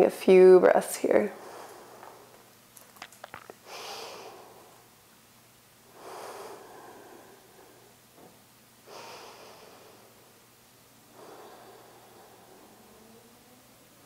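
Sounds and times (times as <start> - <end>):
person breathing through nose: 11.2 - 12.9.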